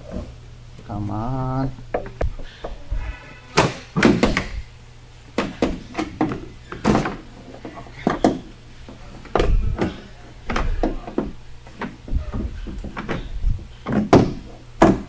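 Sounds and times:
plastic panel knocks and snaps: 3.6s - 4.5s, 9.3s - 15.0s.

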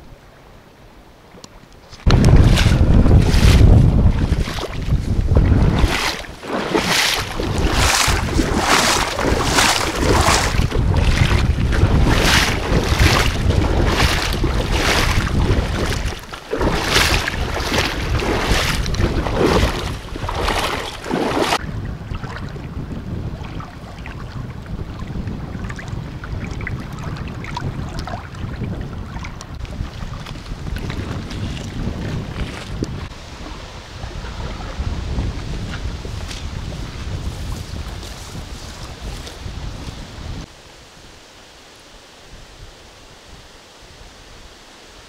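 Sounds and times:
small waves lapping on rocks: 2.0s - 21.6s
wind buffeting microphone: 2.0s - 41.2s
wading through water splashing: 2.1s - 22.6s, 23.3s - 39.4s.

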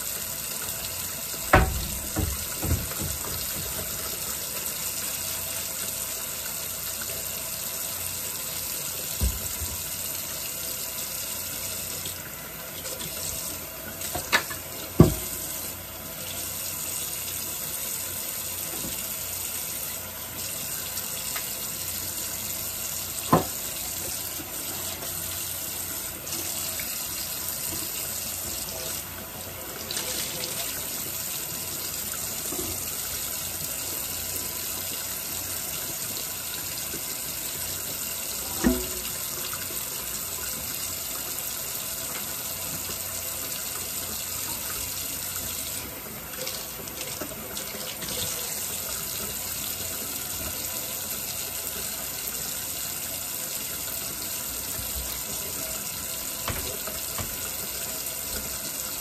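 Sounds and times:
faucet running into sink: 0.0s - 59.0s.

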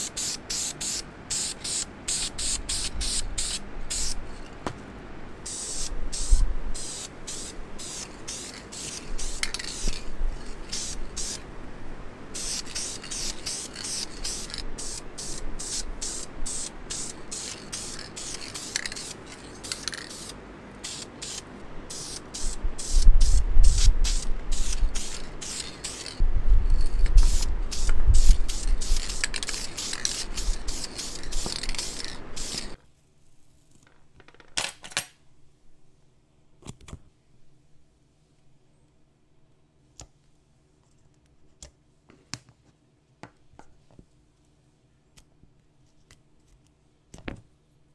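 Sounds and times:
paint spraying in hissing bursts: 0.0s - 4.4s, 5.4s - 11.4s, 12.3s - 32.8s.

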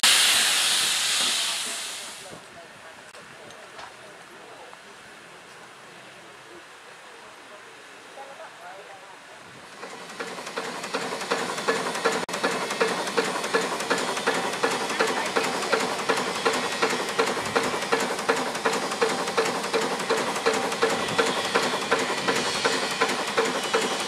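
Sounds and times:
steam engine exhaust beats: 0.0s - 2.4s, 9.7s - 24.0s
steam hissing: 0.0s - 2.5s, 9.7s - 24.0s.

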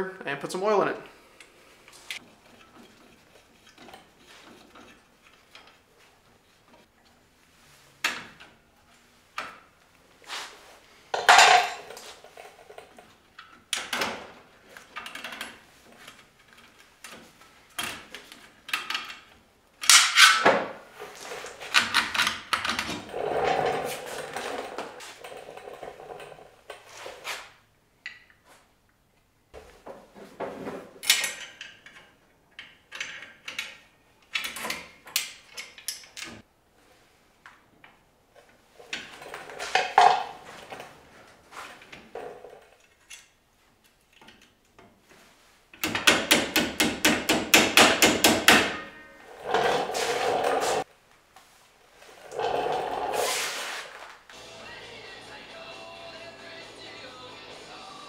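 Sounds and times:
metallic clanks and scrapes: 2.2s - 6.9s.

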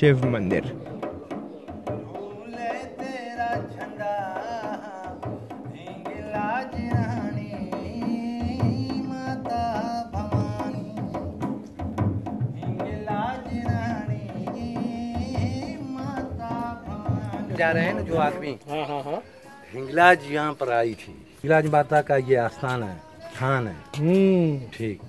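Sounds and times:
barrel drum played by hand: 0.0s - 18.6s.

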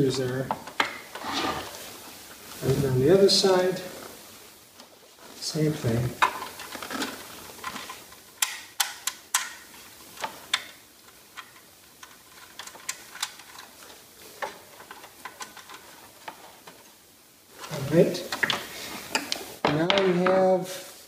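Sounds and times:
sharp clicks of metal and plastic: 7.6s - 9.6s.

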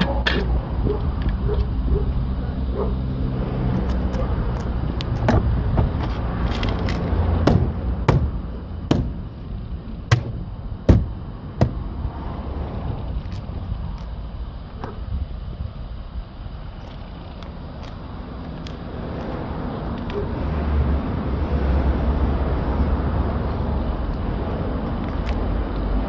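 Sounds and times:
fist knocking on plastic panel: 7.5s - 9.2s, 10.1s - 11.8s.

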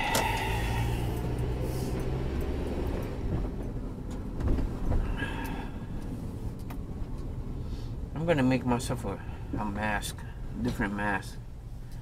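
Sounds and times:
car engine and road hum: 0.0s - 12.0s.

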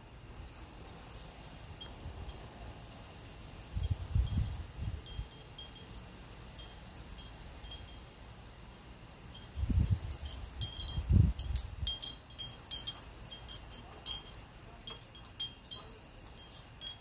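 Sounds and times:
wind chimes tinkling: 1.3s - 17.0s.

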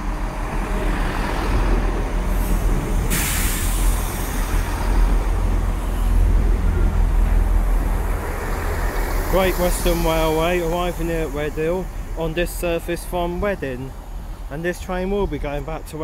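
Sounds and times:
diesel train engines running: 0.0s - 16.0s
wheels rumbling on rails: 0.0s - 16.0s
hiss: 2.3s - 5.1s.

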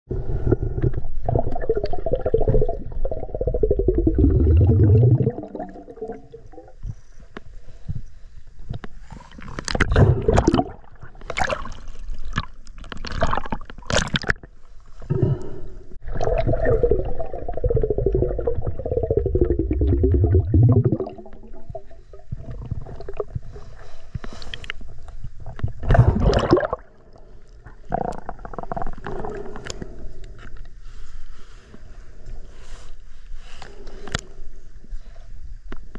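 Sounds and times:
muffled underwater gurgling: 0.1s - 7.0s, 16.0s - 23.4s.

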